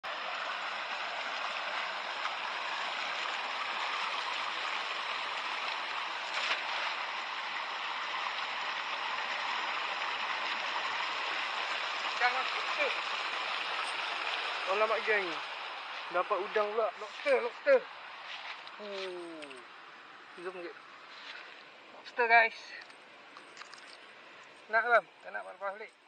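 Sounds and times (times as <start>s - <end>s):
water rushing along a drain: 0.0s - 25.8s
cast net splashing into water: 2.1s - 9.5s.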